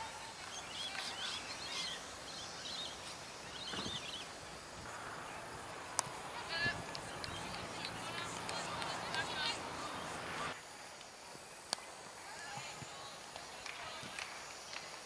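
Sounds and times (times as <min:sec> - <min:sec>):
steady outdoor hiss: 0:00.0 - 0:15.0
small birds chirping: 0:00.4 - 0:10.6.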